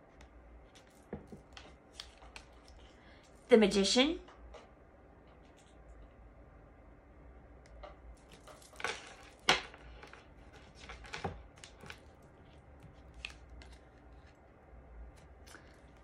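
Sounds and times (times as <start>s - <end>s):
cards scraping and rustling: 0.6s - 3.0s, 8.2s - 14.4s.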